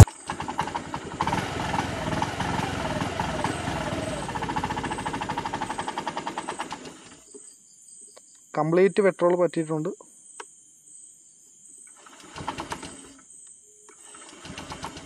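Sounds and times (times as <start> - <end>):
scooter engine cranking: 0.0 - 7.2, 12.0 - 13.2, 14.0 - 15.0.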